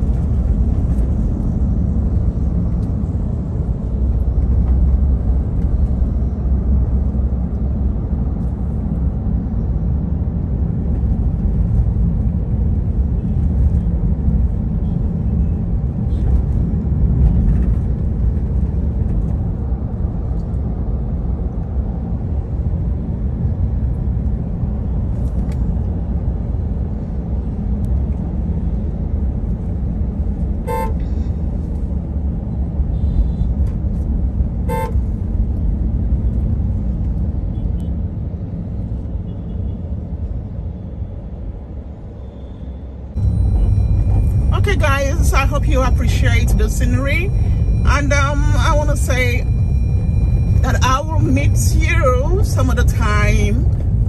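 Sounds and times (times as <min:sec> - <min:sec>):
vehicle rumble on road: 0:00.0 - 0:54.0
horn toots: 0:30.7 - 0:31.0, 0:34.7 - 0:35.0.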